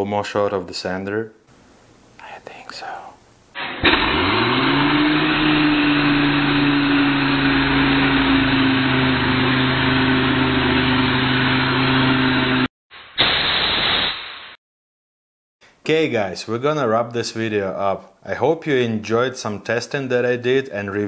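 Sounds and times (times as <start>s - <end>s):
air sander whining: 3.6s - 13.9s.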